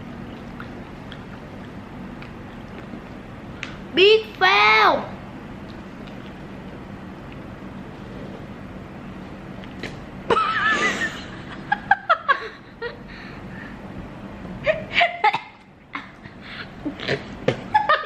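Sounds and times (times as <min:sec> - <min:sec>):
girl laughing: 0:10.3 - 0:13.0, 0:14.6 - 0:18.0.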